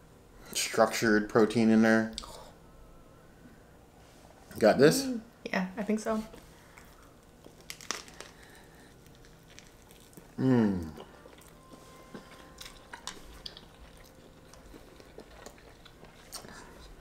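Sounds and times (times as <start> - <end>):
chewing spring roll: 6.7 - 17.0
person humming mmm: 10.3 - 12.8.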